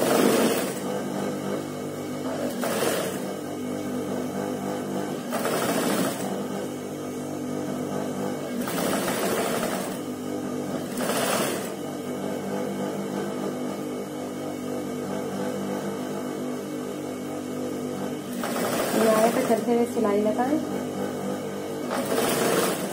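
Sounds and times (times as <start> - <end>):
sewing machine stitching: 0.0 - 6.7, 7.7 - 13.9, 17.9 - 22.9
motor hum: 0.0 - 22.9.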